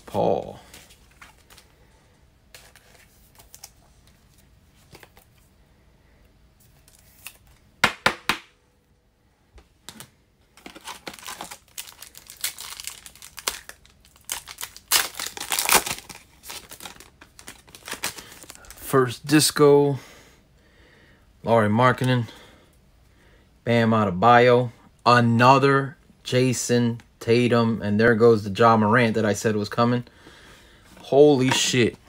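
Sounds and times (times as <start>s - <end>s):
foil wrapper crinkling: 10.6s - 18.8s
foil wrapper tearing: 10.6s - 18.8s.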